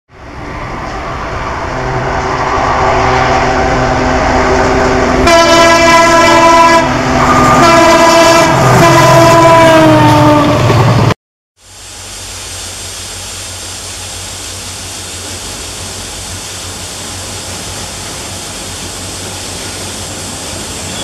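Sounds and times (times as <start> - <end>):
locomotive horn blasts: 1.7 - 10.6.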